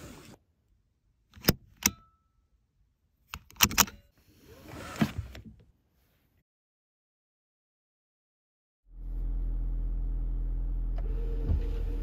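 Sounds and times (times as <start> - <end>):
seatbelt buckle clicks: 3.3 - 4.0.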